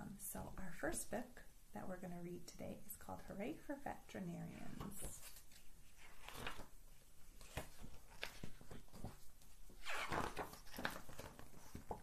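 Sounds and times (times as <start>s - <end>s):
pages turning: 4.8s - 12.0s
paper rustling: 4.8s - 12.0s.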